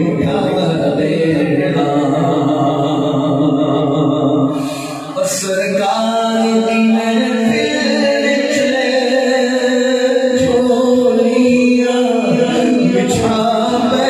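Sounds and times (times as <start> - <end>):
man singing unaccompanied: 0.0 - 14.0.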